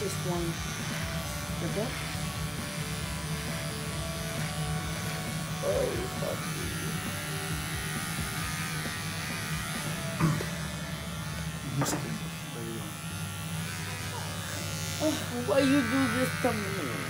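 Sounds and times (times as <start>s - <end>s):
electric shaver buzzing: 0.0s - 17.0s.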